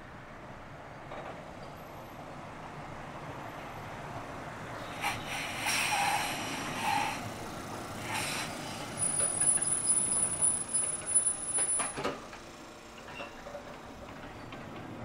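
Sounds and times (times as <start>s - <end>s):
tram rolling on rails: 0.0s - 15.0s
high steady squeal: 8.0s - 12.0s.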